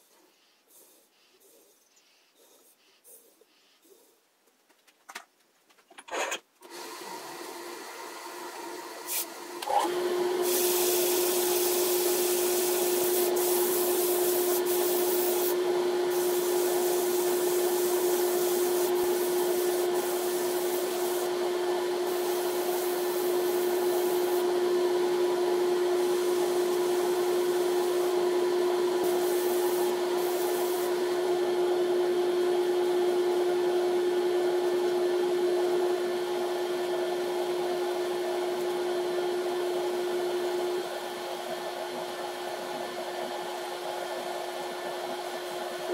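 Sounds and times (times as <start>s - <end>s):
sandpaper hissing on spinning wood: 10.4s - 24.5s, 25.9s - 28.2s, 28.9s - 31.0s.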